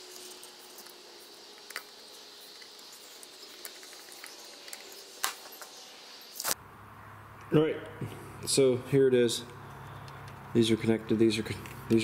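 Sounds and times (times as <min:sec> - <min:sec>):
faint steady high hiss: 0:00.0 - 0:09.6.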